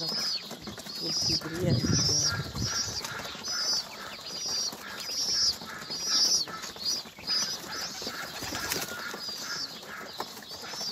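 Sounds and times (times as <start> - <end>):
pigeons pecking: 0.0 - 10.9
wing rustle: 0.0 - 10.9.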